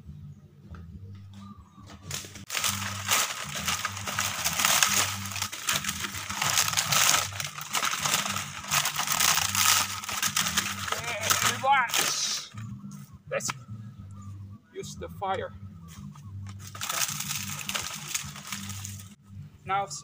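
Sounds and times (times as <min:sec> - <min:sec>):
dry leaves rustling and crackling: 0:02.0 - 0:12.6, 0:16.5 - 0:19.2.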